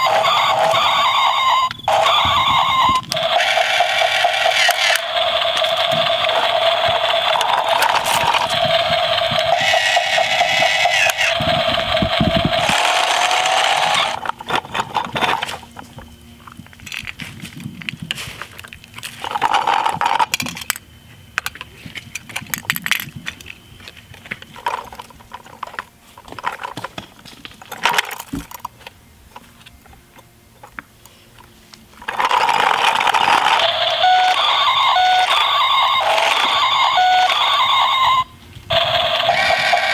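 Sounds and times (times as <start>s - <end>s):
toy short beeps: 0.0s - 4.9s, 9.5s - 11.8s, 33.7s - 39.9s
toy electronic steady tone: 0.0s - 14.3s, 32.2s - 39.9s
plastic toys clicking and scraping: 0.0s - 15.8s, 16.4s - 20.8s, 21.4s - 29.7s, 30.6s - 39.9s.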